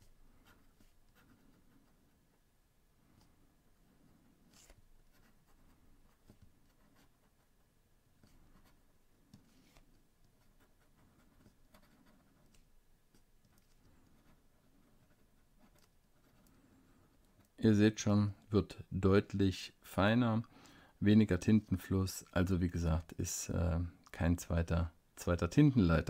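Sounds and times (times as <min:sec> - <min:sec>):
fountain pen nib scratching paper: 0:00.4 - 0:02.2, 0:04.4 - 0:07.6, 0:08.2 - 0:17.6.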